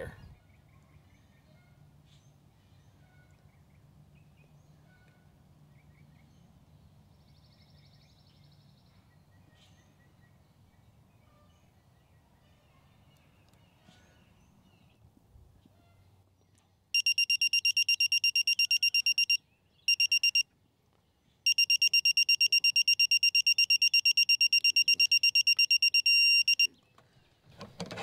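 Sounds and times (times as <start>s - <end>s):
short steady tone: 17.0s - 20.4s, 21.5s - 26.7s
torque wrench rapid beeping: 17.0s - 20.4s, 21.5s - 26.7s.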